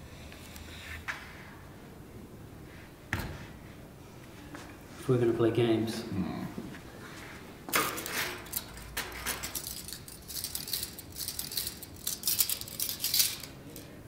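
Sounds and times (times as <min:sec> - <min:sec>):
keys jingling: 0:07.9 - 0:13.9.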